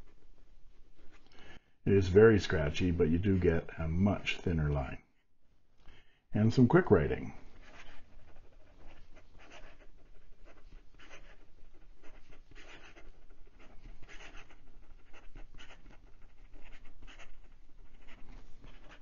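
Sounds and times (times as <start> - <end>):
pen nib scratching on paper: 7.5 - 19.0.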